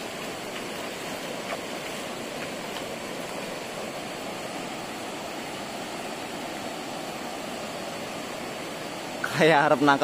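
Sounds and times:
river water flowing: 0:00.0 - 0:10.0.

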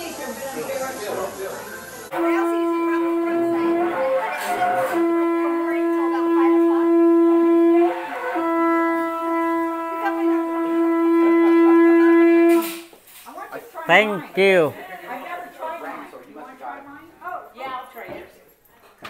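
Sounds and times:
wind instrument long steady notes: 0:02.1 - 0:12.8.

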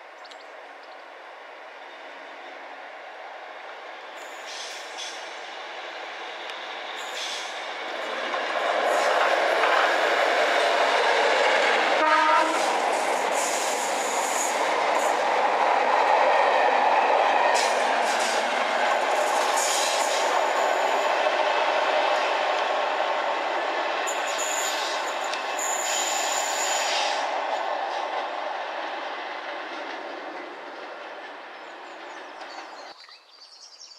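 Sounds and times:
train rumbling past: 0:01.1 - 0:33.0
train horn blast: 0:12.0 - 0:12.8.

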